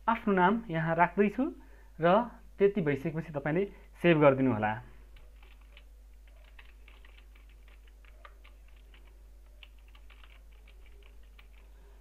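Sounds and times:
typing on computer keyboard: 0:05.2 - 0:11.7.

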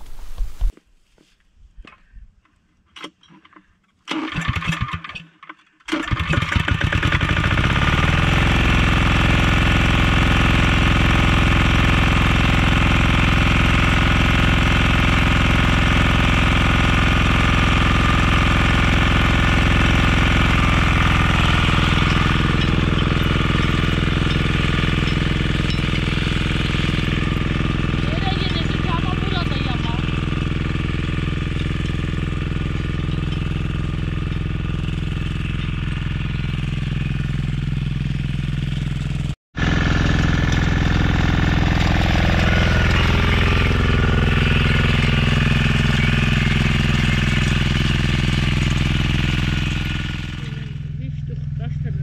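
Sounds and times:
recoil starter cord pulled: 0:02.9 - 0:08.2
small tiller engine running: 0:03.4 - 0:05.2, 0:05.8 - 0:52.0.

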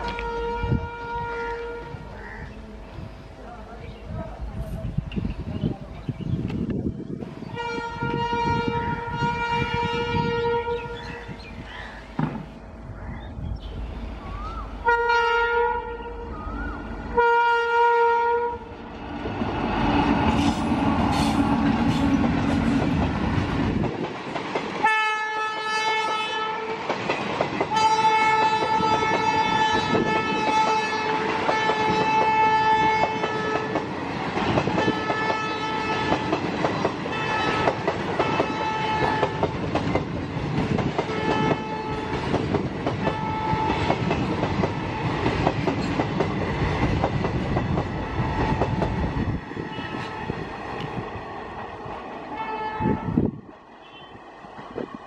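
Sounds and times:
train air horn blasts: 0:00.0 - 0:02.4, 0:07.5 - 0:11.0, 0:14.8 - 0:16.3, 0:17.1 - 0:18.7, 0:24.8 - 0:26.8, 0:27.7 - 0:33.8, 0:34.8 - 0:36.4, 0:37.1 - 0:39.5, 0:41.1 - 0:42.2, 0:43.0 - 0:44.0, 0:49.7 - 0:50.2, 0:52.3 - 0:54.2
locomotive rumbling past: 0:00.0 - 0:55.0.

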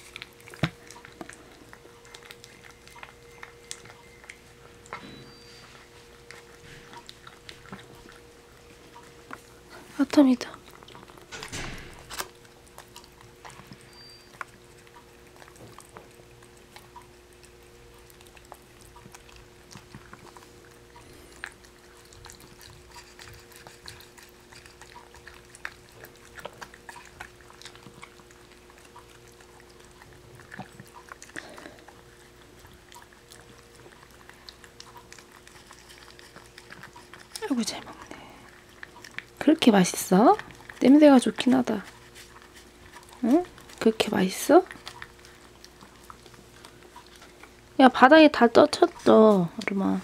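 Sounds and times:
animal lapping wet food: 0:00.0 - 0:10.0, 0:10.6 - 0:47.8
faint steady hum: 0:00.0 - 0:50.0.

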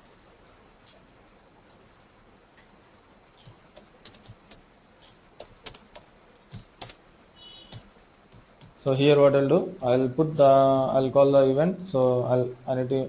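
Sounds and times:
keyboard typing: 0:03.4 - 0:07.0, 0:07.6 - 0:09.1.

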